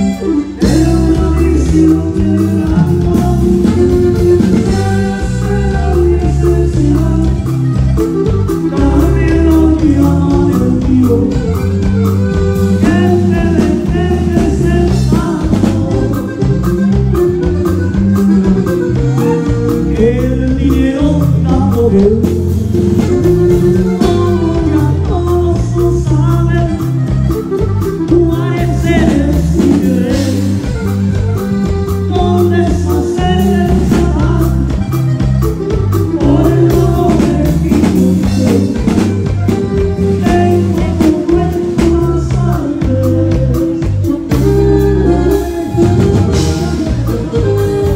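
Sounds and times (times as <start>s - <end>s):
drum beat: 0.0s - 47.9s
electric bass: 0.0s - 47.9s
person singing: 0.0s - 47.9s.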